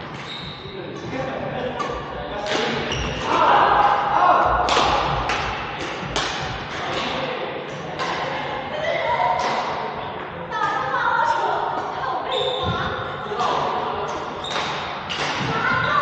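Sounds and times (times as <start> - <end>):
rackets smacking shuttlecocks: 1.8 - 8.5, 9.3 - 10.8, 13.3 - 15.8.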